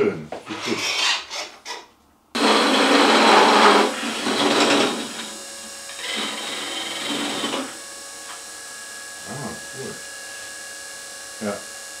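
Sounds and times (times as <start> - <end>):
wood lathe scraping: 2.4 - 7.8.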